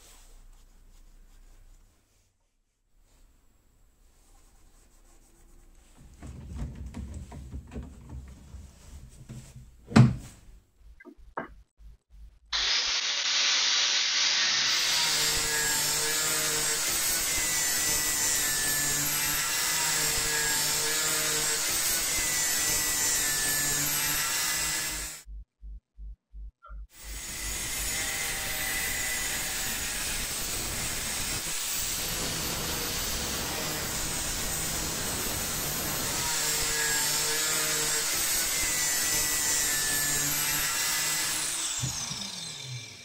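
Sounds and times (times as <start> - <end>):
angle grinder cutting steel: 12.6 - 25.2, 27.0 - 43.0.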